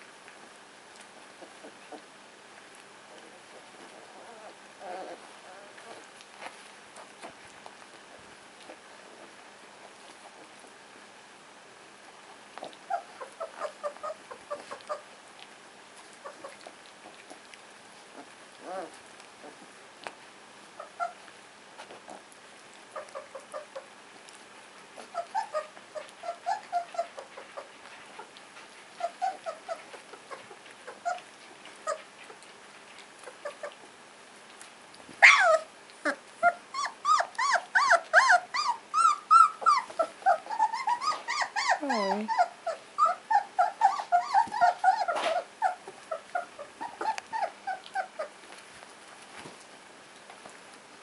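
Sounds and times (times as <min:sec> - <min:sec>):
puppies squeaking and whining: 0:03.1 - 0:06.4, 0:12.6 - 0:15.1, 0:16.2 - 0:16.8, 0:18.1 - 0:19.6, 0:20.8 - 0:22.3, 0:22.9 - 0:23.9, 0:25.0 - 0:33.9, 0:35.1 - 0:48.6
puppy yelp: 0:12.6 - 0:15.1, 0:20.8 - 0:21.3, 0:22.9 - 0:23.9, 0:25.0 - 0:32.4, 0:33.2 - 0:33.8, 0:35.1 - 0:48.4.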